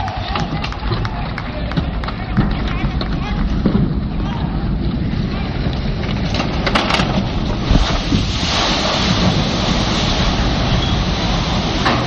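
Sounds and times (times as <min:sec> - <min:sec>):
wind buffeting microphone: 0:00.0 - 0:12.0
heavy knock of hull: 0:00.3 - 0:04.6
rushing splashing water: 0:06.7 - 0:12.0.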